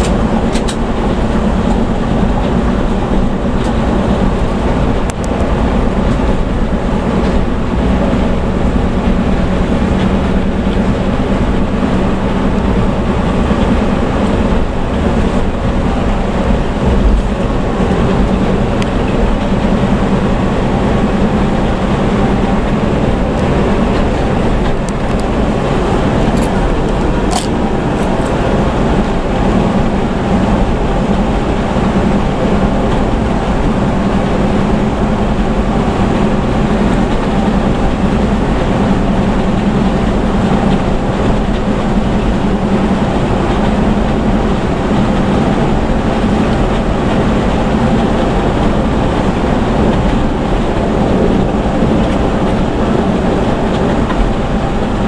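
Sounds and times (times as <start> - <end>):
bus engine drone: 0.0 - 55.0
road and tyre noise: 0.0 - 55.0.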